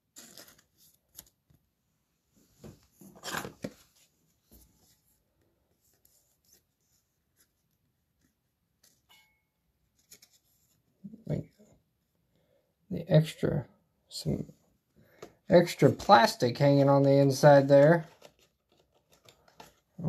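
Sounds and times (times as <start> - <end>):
card rustling against plastic: 9.9 - 10.8, 15.1 - 20.0.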